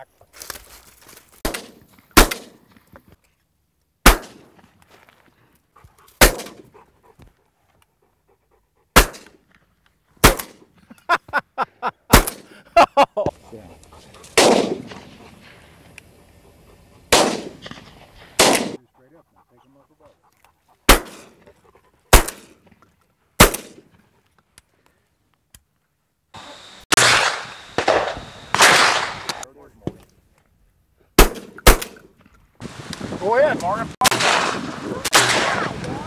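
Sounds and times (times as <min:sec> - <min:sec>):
shotgun blasts: 0:01.4 - 0:02.6, 0:04.0 - 0:04.6, 0:06.2 - 0:06.7, 0:09.0 - 0:09.4, 0:10.2 - 0:10.6, 0:12.1 - 0:12.5, 0:14.4 - 0:15.5, 0:17.1 - 0:18.8, 0:20.9 - 0:21.4, 0:22.1 - 0:22.6, 0:23.4 - 0:23.9, 0:26.9 - 0:29.4, 0:31.2 - 0:32.1, 0:34.0 - 0:36.0.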